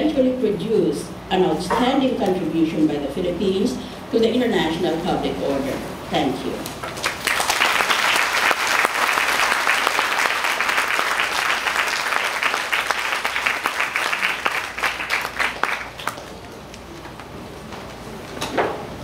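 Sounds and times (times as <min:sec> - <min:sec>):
audience applauding: 0:06.8 - 0:16.6.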